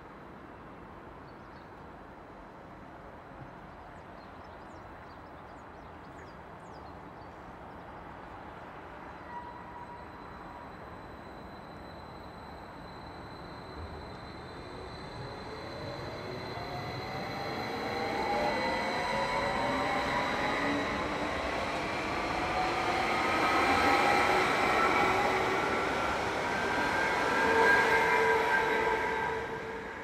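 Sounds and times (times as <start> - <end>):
train wheels rumbling on rails: 12.8 - 30.0.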